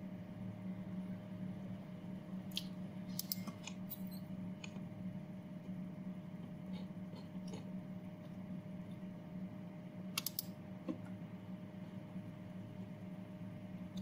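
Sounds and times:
faint low hum: 0.0s - 14.0s
computer mouse clicks: 2.5s - 4.0s, 10.1s - 10.6s.

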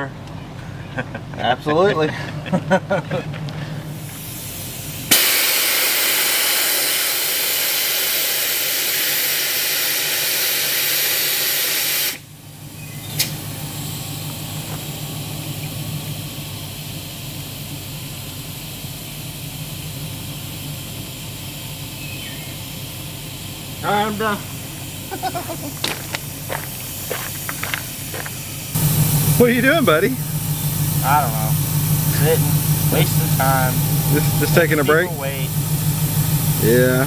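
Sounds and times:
air hissing out of tyre: 3.7s - 12.4s, 13.0s - 14.5s, 16.0s - 29.6s, 30.2s - 34.8s
sharp click: 13.2s - 13.4s
low hum: 19.8s - 37.0s.

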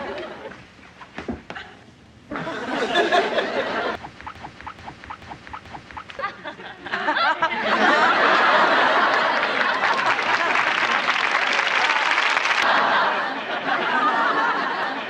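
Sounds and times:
audience laughing and applauding: 6.1s - 15.0s.

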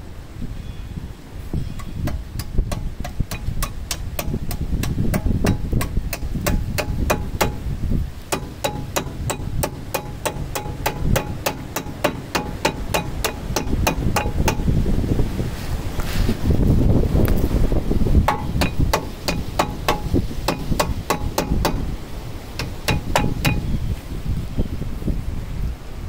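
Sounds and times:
hammer tapping on metal: 1.8s - 7.6s, 8.3s - 14.7s, 18.3s - 21.9s, 22.6s - 23.7s.

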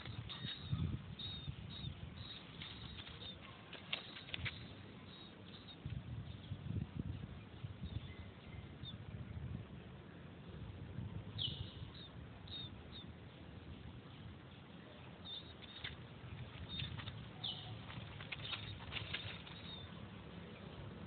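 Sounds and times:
small animal chirping: 0.0s - 5.9s, 16.6s - 20.0s
light rustles: 2.2s - 4.9s, 15.6s - 20.0s.

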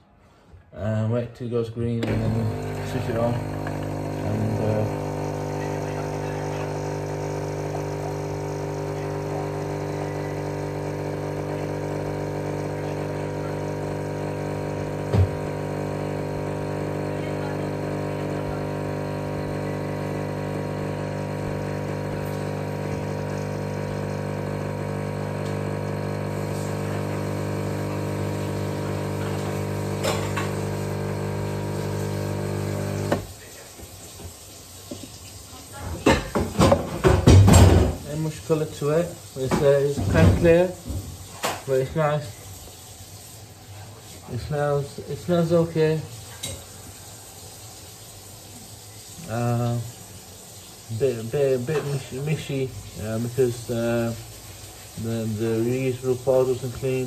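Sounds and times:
drinks machine pump humming: 2.0s - 33.7s, 34.9s - 57.0s.

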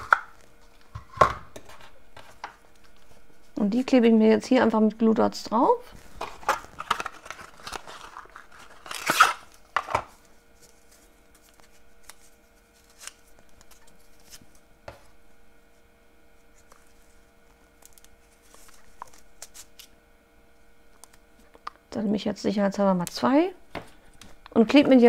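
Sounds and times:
paper rustling: 6.0s - 14.6s, 17.8s - 19.9s.

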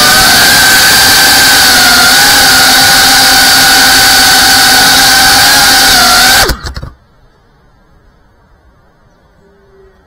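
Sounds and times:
drone motors whining: 0.0s - 7.0s.

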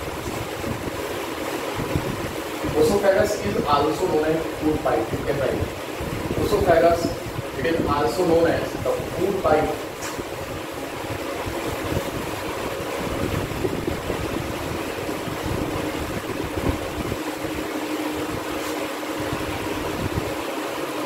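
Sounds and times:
duster scrubbing blackboard: 17.3s - 19.8s.

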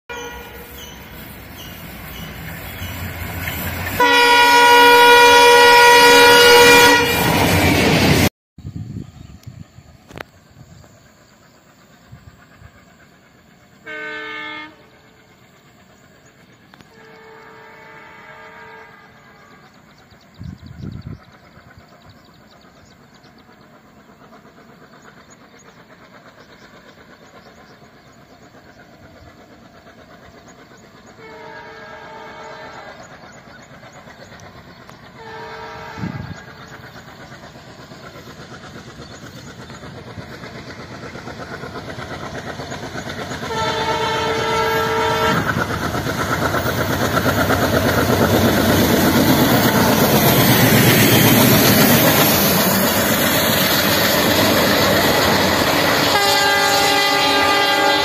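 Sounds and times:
locomotive horn blast: 0.1s - 0.7s, 3.9s - 8.0s, 13.8s - 15.0s, 16.9s - 19.6s, 31.2s - 32.9s, 35.2s - 36.5s, 43.5s - 45.6s, 55.8s - 58.0s
diesel locomotive engines chugging: 0.1s - 58.0s
train wheel noise: 0.1s - 58.0s.

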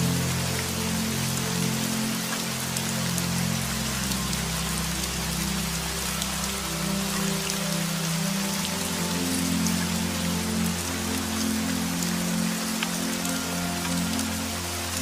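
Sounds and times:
soft music of low notes: 0.0s - 15.0s
steady rain: 0.0s - 15.0s.

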